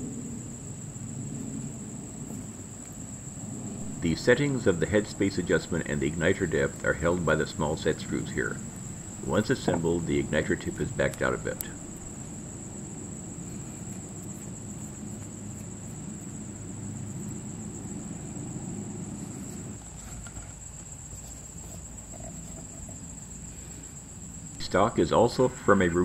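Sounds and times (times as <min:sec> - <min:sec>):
low rumble: 0:03.4 - 0:12.3.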